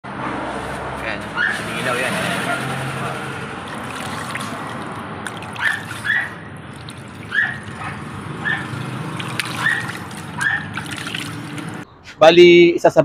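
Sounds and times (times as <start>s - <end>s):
water trickling and splashing: 2.9s - 11.9s.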